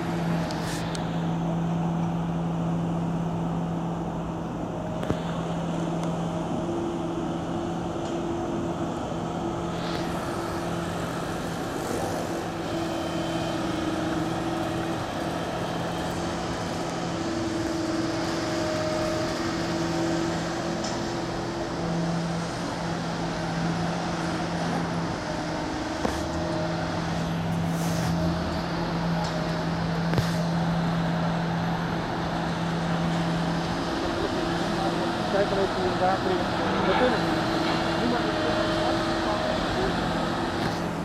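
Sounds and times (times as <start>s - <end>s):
diesel engine droning: 0.0s - 41.0s.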